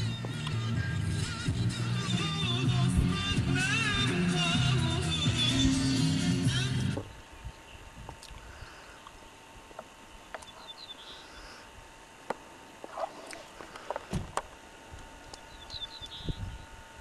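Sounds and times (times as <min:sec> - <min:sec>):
high bird chirps: 0:10.4 - 0:11.2, 0:15.4 - 0:16.6.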